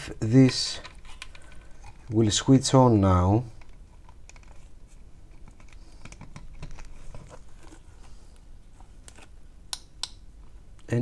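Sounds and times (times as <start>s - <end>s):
small plastic parts clicking: 5.3s - 6.9s.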